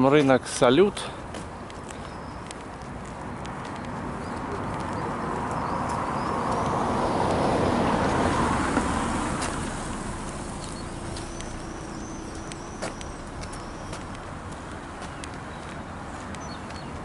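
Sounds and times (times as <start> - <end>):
car driving past: 4.4 - 16.3.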